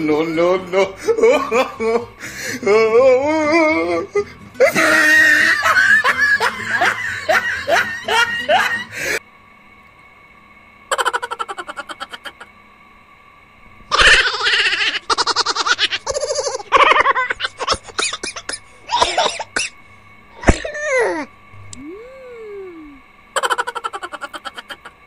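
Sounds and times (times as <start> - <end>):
loud rapid laughing: 1.0 - 2.1, 4.6 - 9.2, 10.9 - 12.5, 13.9 - 19.7, 21.9 - 25.0.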